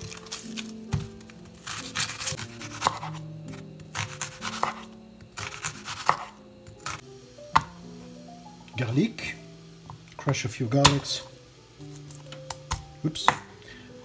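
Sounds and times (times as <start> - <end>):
knife slicing onion: 0.0 - 7.0
background music with held notes: 0.0 - 14.0.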